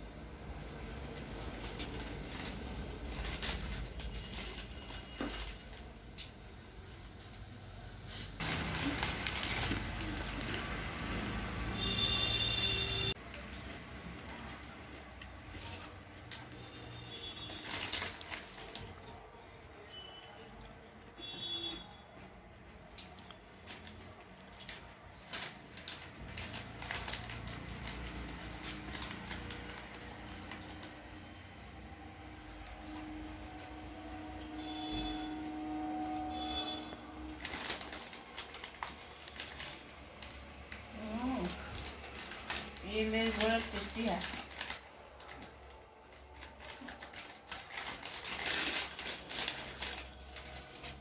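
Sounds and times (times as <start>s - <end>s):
foil packet crinkling: 0.8s - 6.1s, 8.4s - 11.2s, 15.5s - 19.1s, 23.7s - 31.4s, 36.4s - 51.0s.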